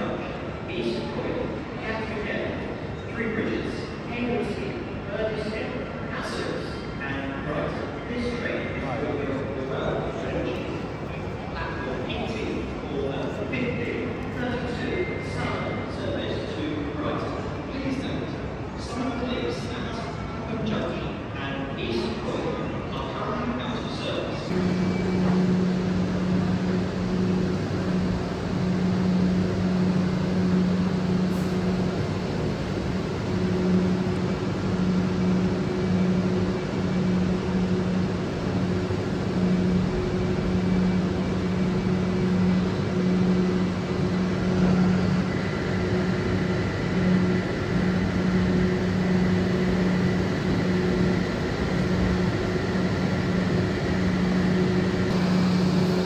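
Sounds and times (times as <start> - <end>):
station background noise: 0.0 - 56.0
electric train humming: 24.5 - 56.0
faint high whines: 24.5 - 56.0.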